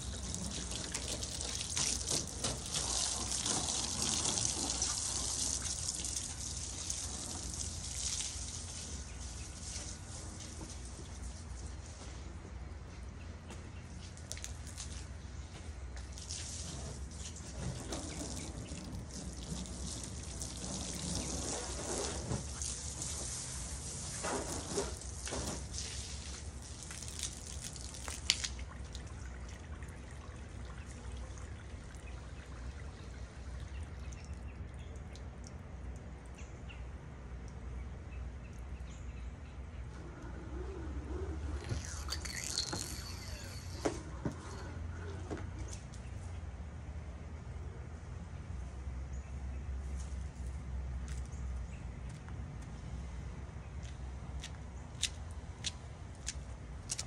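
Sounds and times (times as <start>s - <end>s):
garden hose spraying water: 0.0s - 12.4s, 16.0s - 33.8s, 41.1s - 44.6s.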